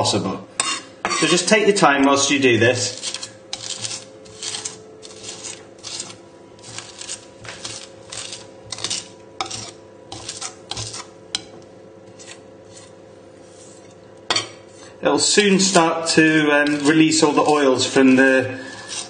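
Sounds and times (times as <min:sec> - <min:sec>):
knife crunching garlic on board: 0:02.9 - 0:11.1.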